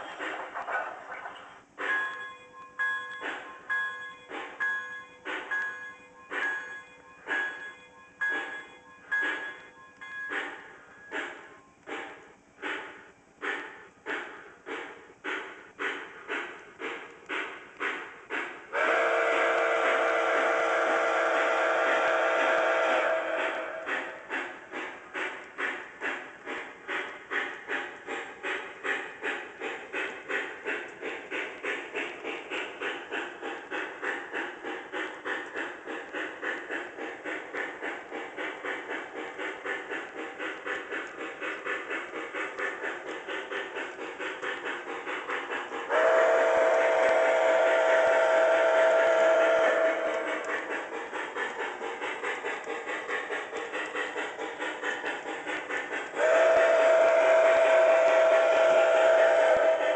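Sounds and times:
model train steam chuff: 0:00.0 - 0:02.2, 0:03.1 - 0:59.9
steam whistle chord: 0:18.8 - 0:24.1, 0:45.9 - 0:50.2, 0:56.2 - 0:59.9.

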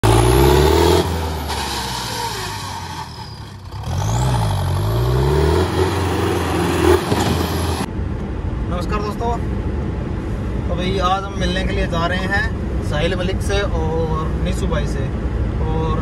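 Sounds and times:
tractor diesel engine revving: 0:00.0 - 0:07.9.

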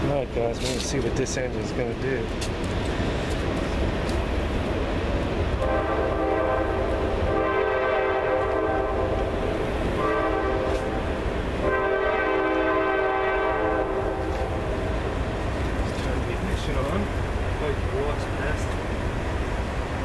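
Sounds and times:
horn blasts: 0:05.6 - 0:09.4, 0:10.0 - 0:14.7.

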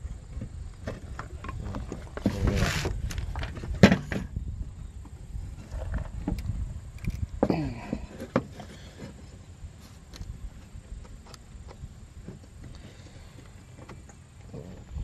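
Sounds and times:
scraping rustle: 0:00.8 - 0:04.3.

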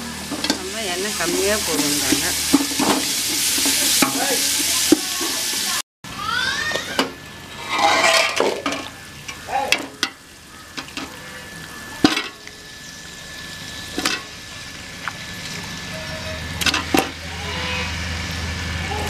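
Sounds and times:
meat sizzling in oil: 0:00.0 - 0:05.8, 0:06.4 - 0:17.1
ladle scraping pot: 0:07.5 - 0:08.9.

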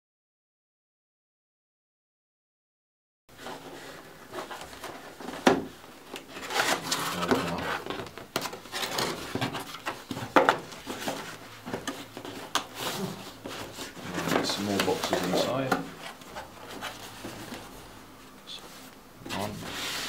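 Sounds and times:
cardboard box rustling: 0:03.4 - 0:17.8.

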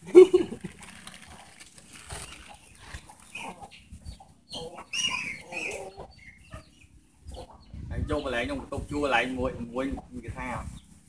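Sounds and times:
dry leaves rustling: 0:00.1 - 0:03.5
chicken clucking: 0:00.3 - 0:10.8.

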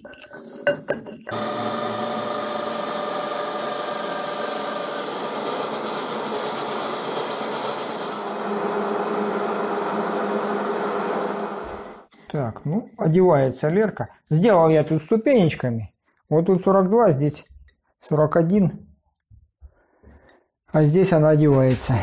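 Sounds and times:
metal lathe cutting pipe: 0:01.3 - 0:12.0.

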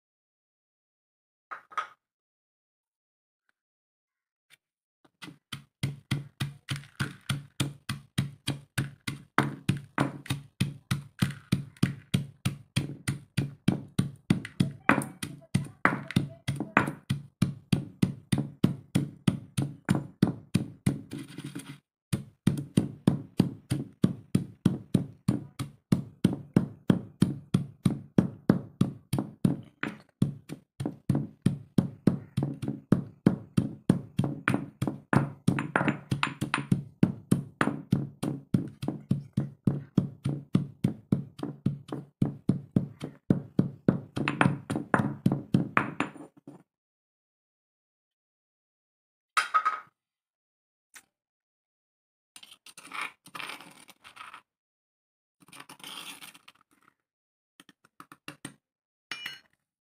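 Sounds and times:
pestle pounding grain in mortar: 0:05.2 - 0:46.6.

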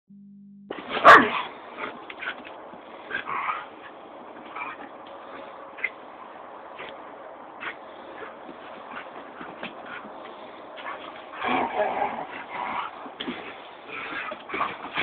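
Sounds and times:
dog barking: 0:01.0 - 0:01.5.

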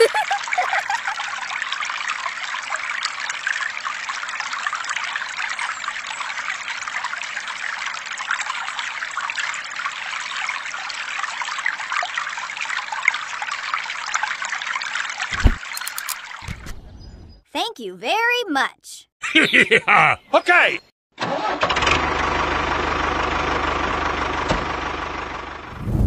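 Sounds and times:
water pouring into puddle: 0:00.4 - 0:16.4.

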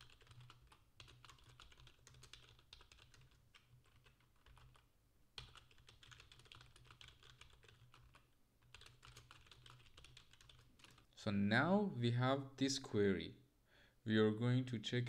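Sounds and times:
keyboard typing: 0:00.0 - 0:11.1.

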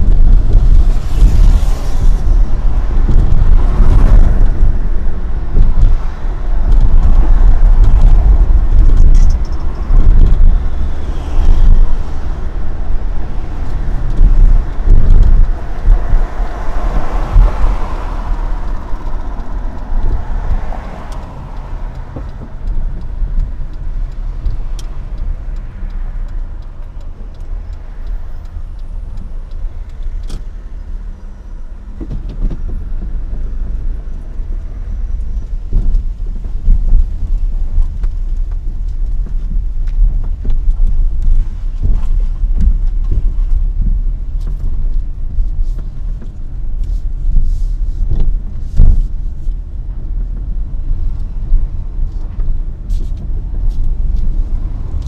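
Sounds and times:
rush of noise: 0:00.0 - 0:23.2
car engine and tyre rumble: 0:00.0 - 0:55.0.

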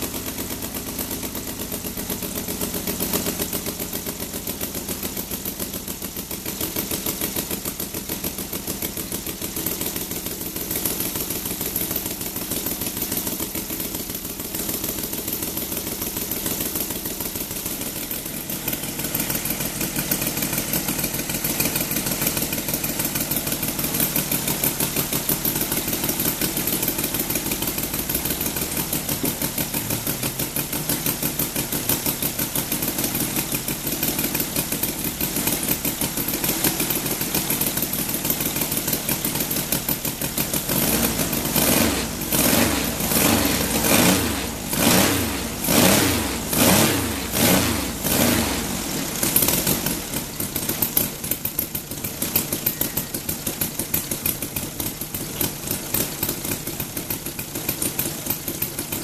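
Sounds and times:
model aircraft engine revving: 0:40.7 - 0:50.4.

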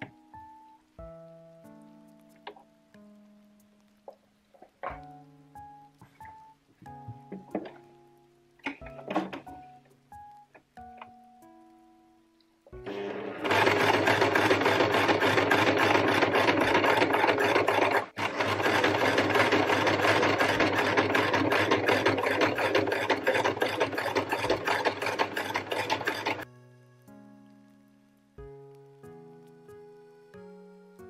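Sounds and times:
sewing machine stitching: 0:12.9 - 0:26.4.

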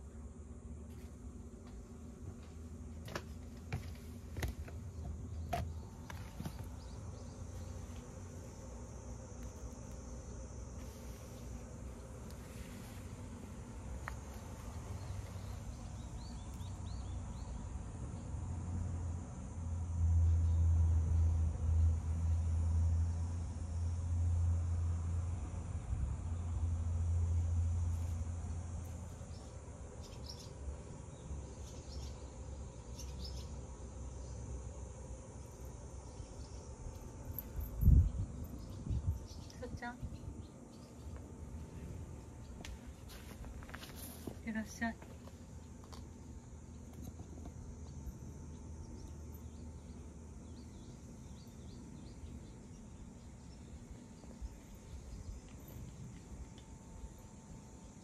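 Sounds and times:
small birds chirping: 0:01.7 - 0:18.4, 0:28.9 - 0:58.0
steady low rumble: 0:34.6 - 0:58.0.

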